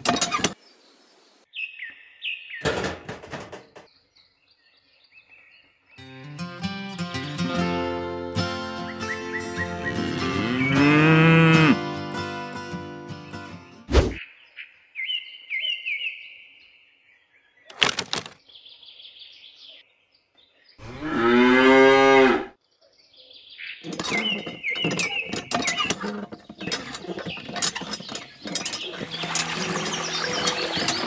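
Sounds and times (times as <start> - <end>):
cow mooing: 9.9 - 11.8, 20.8 - 22.5.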